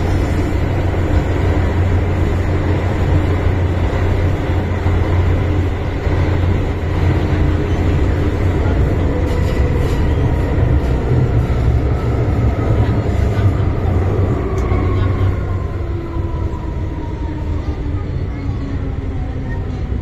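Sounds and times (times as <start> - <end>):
train rumbling: 0.0 - 20.0.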